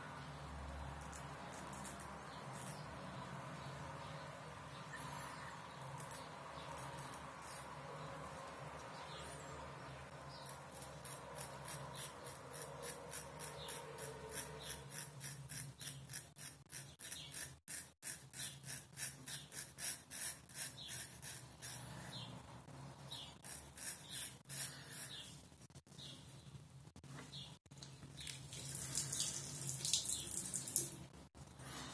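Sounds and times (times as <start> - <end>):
razor scraping stubble: 5.8 - 7.8, 10.4 - 22.0, 23.2 - 25.3.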